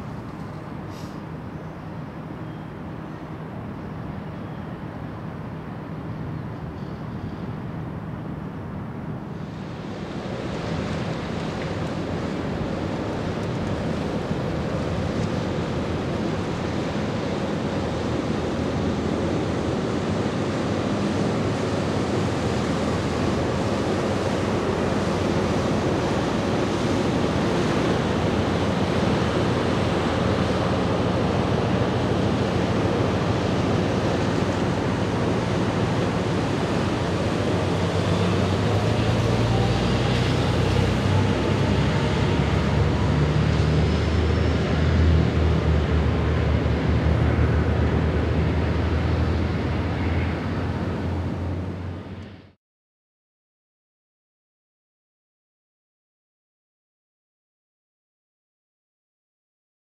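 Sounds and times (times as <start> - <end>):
rush of water and wind: 0.0 - 52.6
low engine drone: 3.9 - 52.6.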